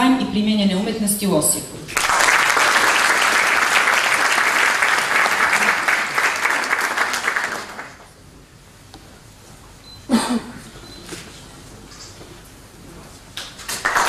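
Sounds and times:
audience applauding: 0:01.9 - 0:08.1, 0:13.6 - 0:14.0.

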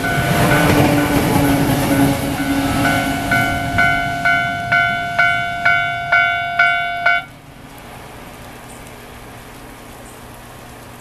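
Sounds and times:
level crossing bell ringing: 0:00.0 - 0:07.3.

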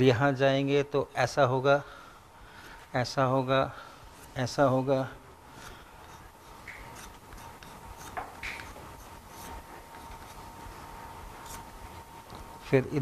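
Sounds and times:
chalk tapping and scraping on blackboard: 0:05.6 - 0:10.5, 0:11.4 - 0:12.5.

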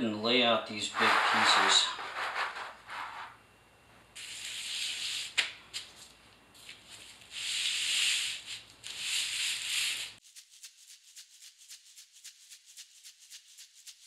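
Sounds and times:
tile sheets sliding on paper: 0:00.9 - 0:03.4, 0:07.3 - 0:10.2.

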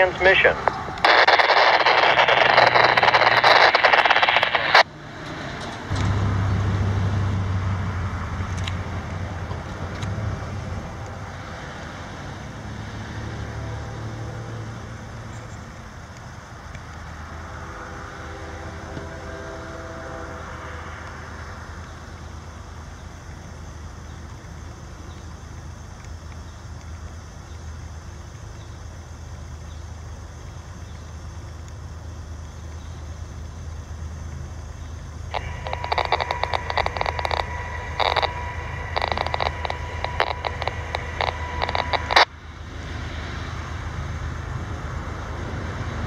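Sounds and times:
scanner radio static: 0:00.0 - 0:04.9, 0:17.2 - 0:22.6, 0:34.8 - 0:43.7
diesel locomotive rumble: 0:00.0 - 0:46.0.

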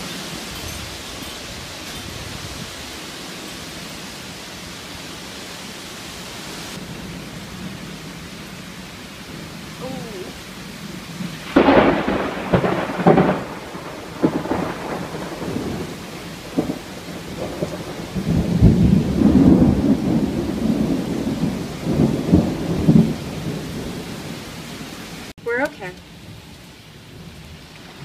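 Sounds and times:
strong wind gusts in trees: 0:00.0 - 0:25.3
heavy rain: 0:00.0 - 0:28.0
thunder cracking and rolling: 0:09.3 - 0:24.4.

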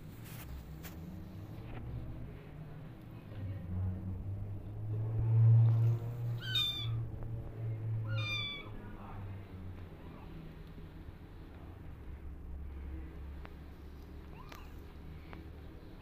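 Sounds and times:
low steady hum: 0:00.0 - 0:16.0
kitten mewing: 0:06.4 - 0:07.0, 0:08.0 - 0:08.8, 0:14.2 - 0:14.8.

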